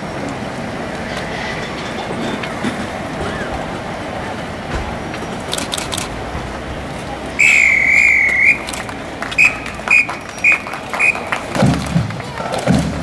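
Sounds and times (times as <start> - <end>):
crowd chatter: 0.0 - 13.0
whistle blasts: 7.4 - 11.6.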